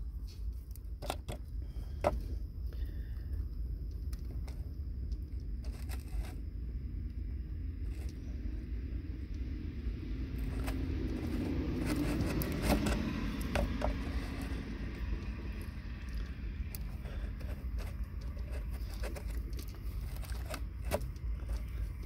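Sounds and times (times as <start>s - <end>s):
wire strippers clicking and scraping: 0.0s - 2.3s, 3.9s - 6.5s, 7.8s - 8.4s, 10.3s - 22.0s
steady low rumble: 0.0s - 22.0s.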